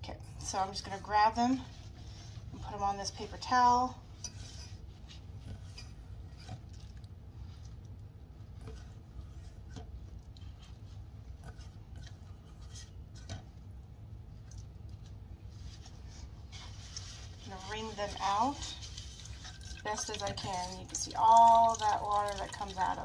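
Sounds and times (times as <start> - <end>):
low steady hum: 0.0 - 23.0
paper towel rustling: 15.4 - 19.6.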